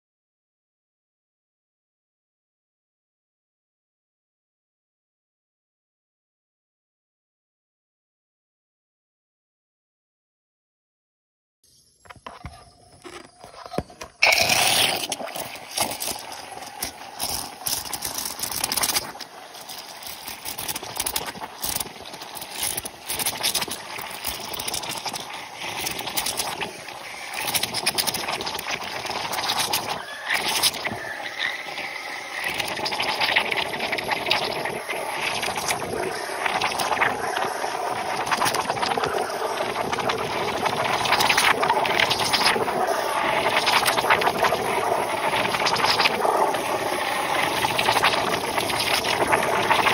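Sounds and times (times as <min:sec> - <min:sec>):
steam wand frothing milk: 0:12.1 - 0:49.9.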